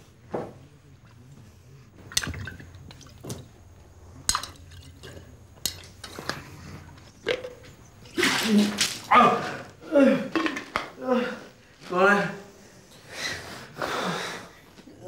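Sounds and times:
faint low hum: 0.0s - 10.4s
liquid dripping and splashing: 2.0s - 6.2s.

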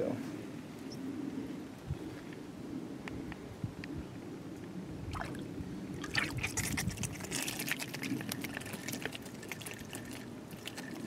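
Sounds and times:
fish splashing in water: 5.1s - 11.0s.

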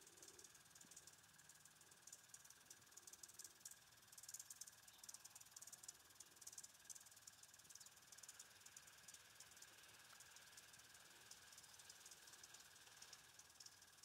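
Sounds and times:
faint steady high tone: 0.0s - 0.5s
high rapid ticking: 0.0s - 14.0s.

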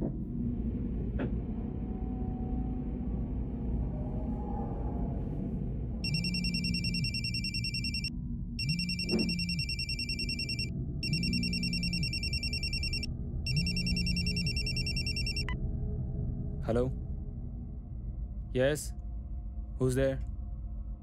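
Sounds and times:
telephone electronic trilling ring: 6.0s - 15.6s.

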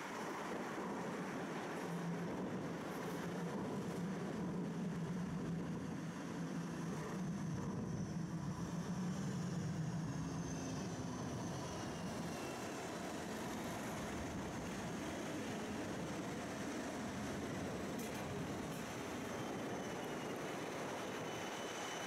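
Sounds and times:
tram rumble: 0.0s - 22.0s
faint high whine: 4.6s - 22.0s.

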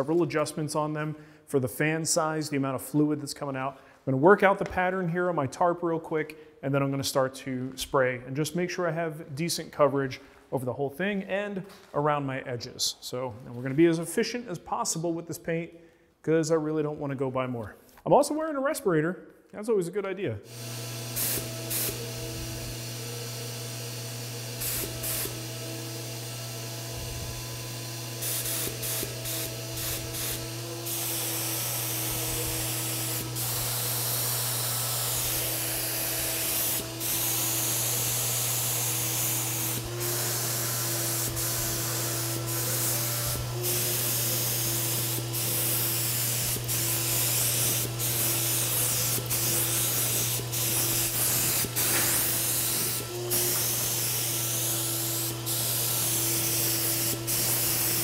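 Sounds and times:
compressor motor humming: 20.5s - 58.0s
paint spray gun hissing: 20.5s - 58.0s.

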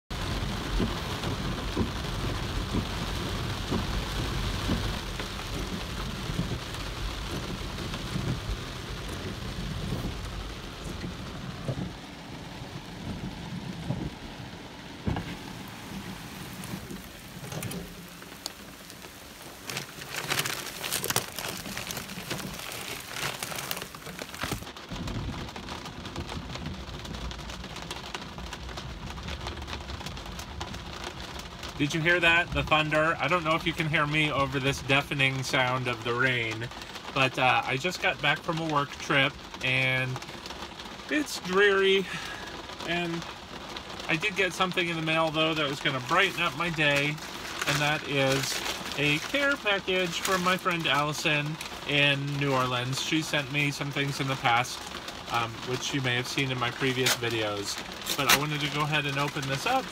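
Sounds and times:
heavy rain on car glass roof: 0.1s - 59.9s
low rumble of thunder: 0.2s - 18.0s, 24.8s - 31.0s.

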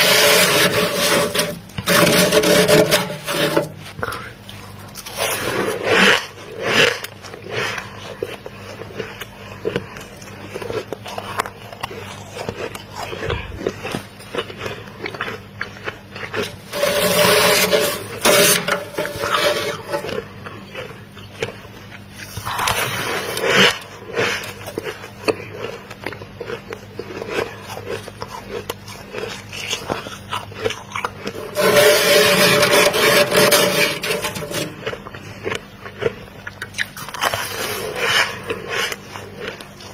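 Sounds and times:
metal spoon scraping frost: 0.0s - 7.2s, 16.2s - 21.0s, 22.2s - 25.0s, 31.1s - 35.1s, 37.0s - 39.9s.

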